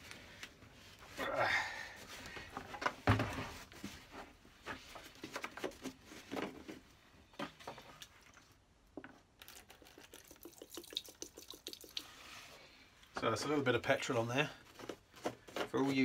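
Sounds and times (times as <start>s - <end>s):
liquid pouring into plastic tray: 9.4s - 12.2s.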